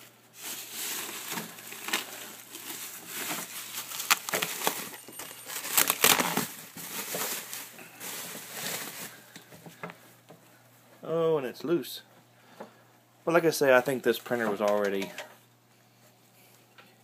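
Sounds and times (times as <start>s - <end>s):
bubble wrap crinkling: 0.0s - 9.6s.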